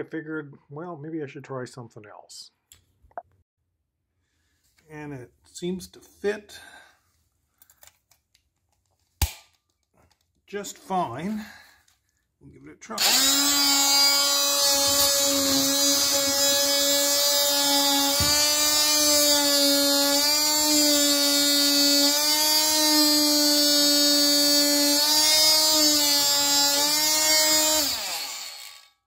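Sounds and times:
oscillating multi-tool buzz: 13.0 - 29.0.

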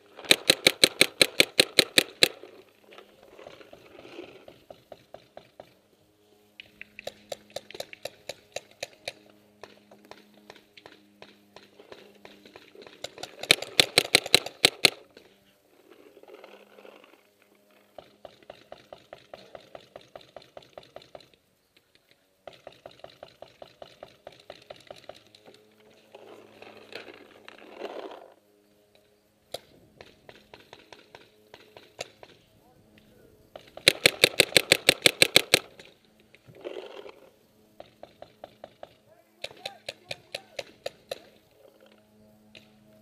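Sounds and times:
paintball markers firing rapidly: 0.2 - 2.4, 6.6 - 15.3, 17.9 - 21.3, 22.4 - 25.5, 33.5 - 36.0, 37.8 - 41.4.

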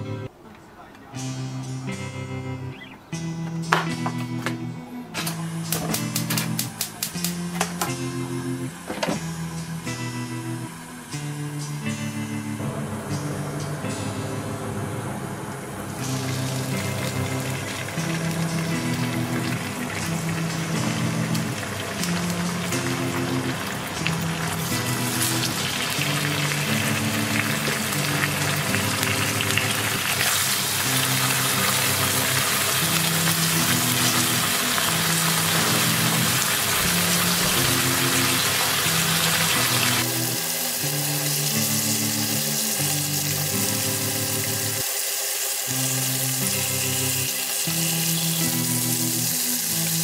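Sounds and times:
meat sizzling in hot oil: 16.0 - 50.0.

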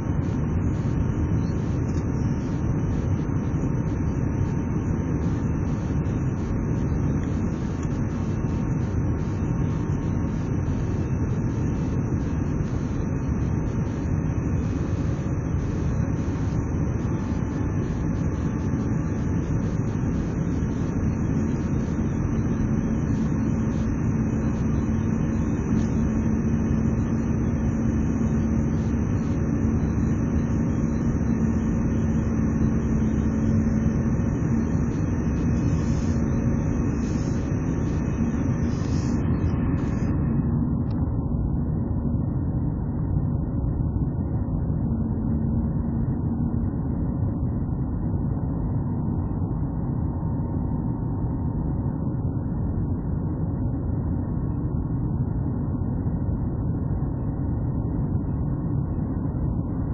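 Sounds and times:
jet engine and airflow rush: 0.0 - 47.4
low hum: 0.0 - 59.9.

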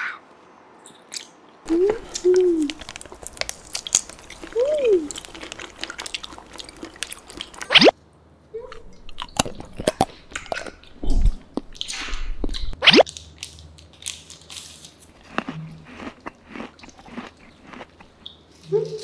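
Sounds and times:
wet chewing of jelly candy: 1.1 - 8.0, 9.0 - 18.5
person humming: 1.7 - 2.8, 4.5 - 5.2.

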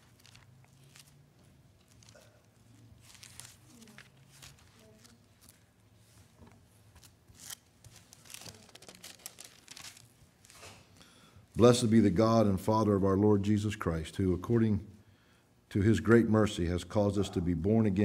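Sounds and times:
thin pages rustling: 0.0 - 10.8.

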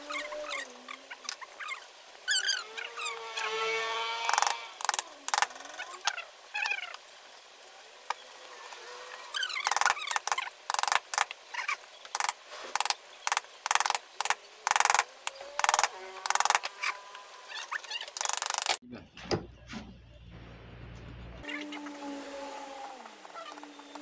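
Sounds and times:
carving gouge slicing wood: 4.2 - 5.6, 12.2 - 16.8, 18.1 - 18.8.

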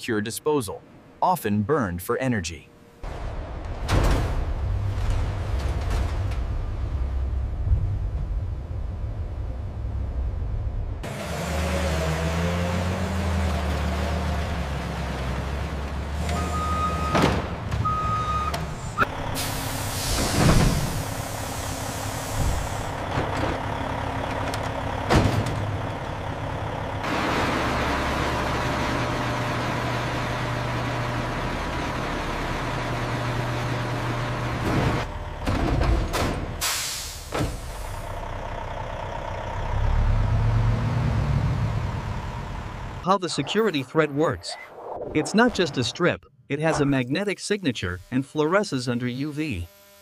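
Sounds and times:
forklift engine running: 8.9 - 43.1
backup alarm beeps: 16.3 - 19.1
air brakes hissing: 18.7 - 23.0, 36.6 - 38.1.

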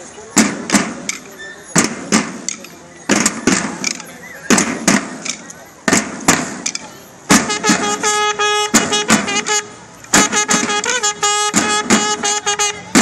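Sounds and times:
snare drums beating: 0.4 - 13.0
bugle call: 7.4 - 13.0.

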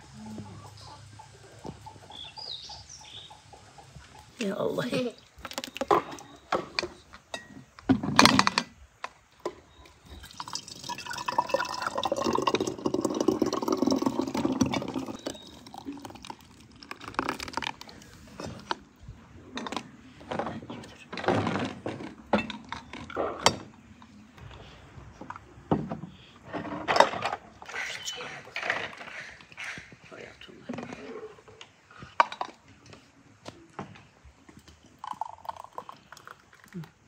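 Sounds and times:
juice pouring into bottle: 10.2 - 18.1, 34.8 - 37.0
jug and bottles knocking: 10.4 - 16.4.

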